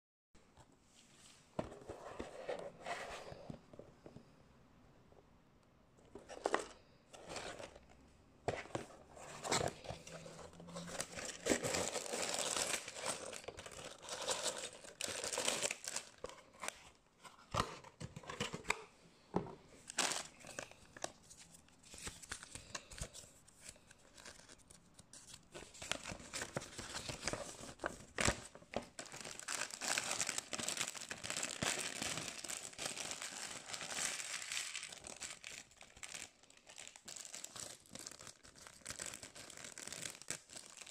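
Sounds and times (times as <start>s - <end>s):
plastic bags crinkling and tearing: 9.5s - 16.6s, 19.9s - 20.8s, 25.6s - 40.9s.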